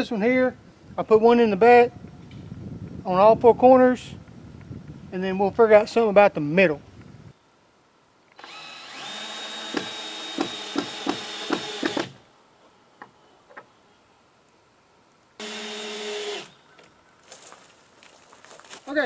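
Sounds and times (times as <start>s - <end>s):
power drill whining: 8.4s - 12.2s, 15.4s - 16.6s.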